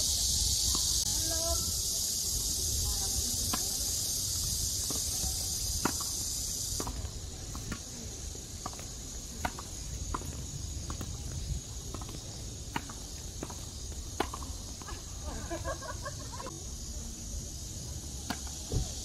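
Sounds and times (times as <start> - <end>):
insects buzzing: 0.0 - 19.0
tennis balls struck by rackets: 3.3 - 15.2, 18.1 - 19.0.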